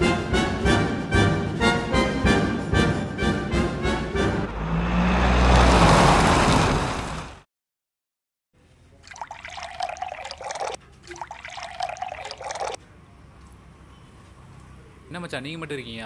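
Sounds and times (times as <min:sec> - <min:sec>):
loud rushing swell: 0:04.4 - 0:06.6
tea pouring into metal pan: 0:09.1 - 0:12.8.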